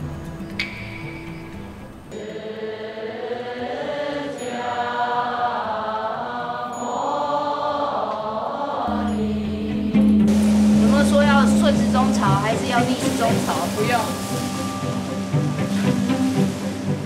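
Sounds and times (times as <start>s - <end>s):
women chanting in unison: 2.2s - 10.0s
steady low hum: 8.9s - 17.0s.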